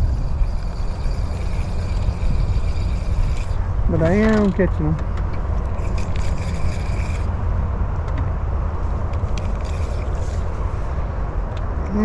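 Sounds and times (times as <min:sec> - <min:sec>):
spinning reel clicking and rattling: 0:00.0 - 0:07.4, 0:09.2 - 0:10.7
steady low rumble: 0:00.0 - 0:12.0.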